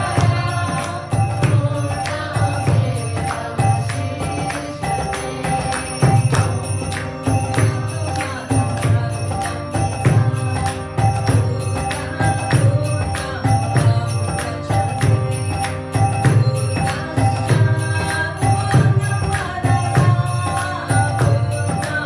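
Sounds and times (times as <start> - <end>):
hand drum beat: 0.0 - 14.1
harmonium chords: 0.0 - 22.0.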